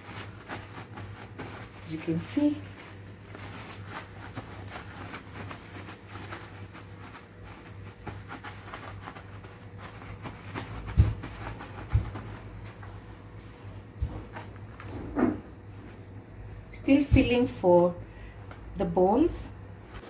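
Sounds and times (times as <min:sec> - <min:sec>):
paper towel crinkling: 0:00.0 - 0:17.6
steady low hum: 0:00.0 - 0:20.0
dull thumps: 0:10.6 - 0:12.6.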